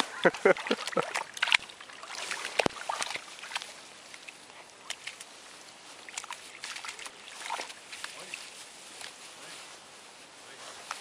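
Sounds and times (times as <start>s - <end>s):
puppies splashing in water: 0.0s - 8.6s
rustling in long grass: 0.0s - 11.0s.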